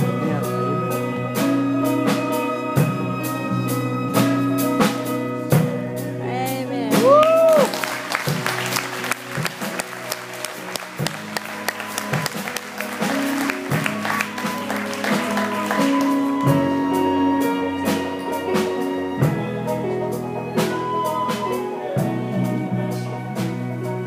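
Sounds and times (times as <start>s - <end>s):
church band music: 0.0s - 24.0s
applause: 7.2s - 16.5s.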